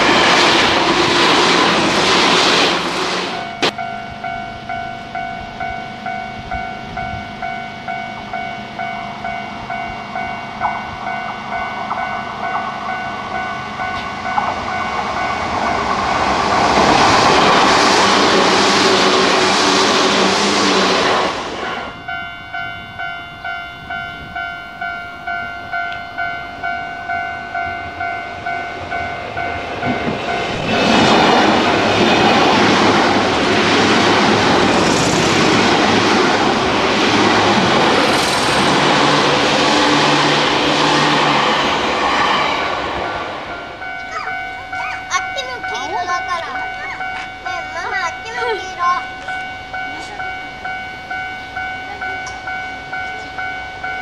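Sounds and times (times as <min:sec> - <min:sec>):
electric train passing: 0:00.0 - 0:54.0
level crossing bell dinging: 0:03.4 - 0:16.3, 0:21.6 - 0:30.6, 0:43.5 - 0:54.0.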